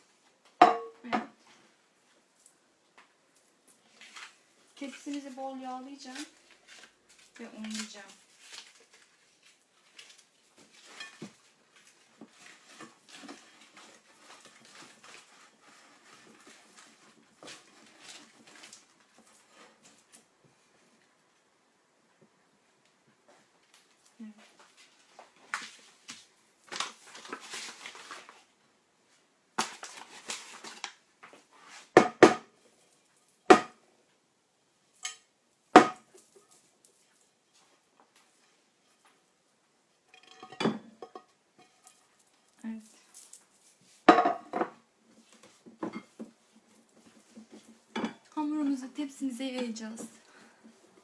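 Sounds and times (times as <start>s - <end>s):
glass dish knocking: 0.6s - 1.3s
flour rustling in dish: 3.6s - 20.2s, 24.5s - 28.5s, 29.6s - 32.0s.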